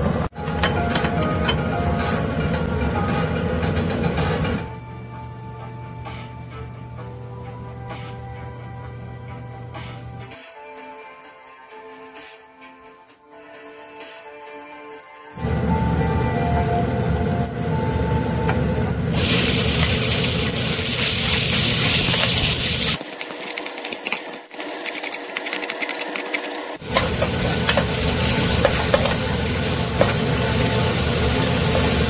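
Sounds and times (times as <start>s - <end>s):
meat sizzling in oil: 19.1s - 32.0s.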